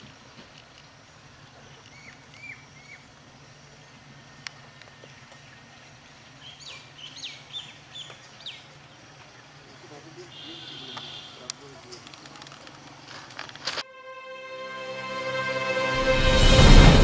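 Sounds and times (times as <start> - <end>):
birds chirping: 0.0 - 13.6.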